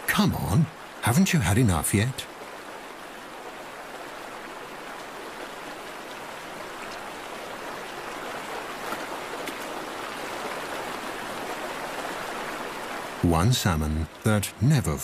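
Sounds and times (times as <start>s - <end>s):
stream water running: 0.0s - 15.0s.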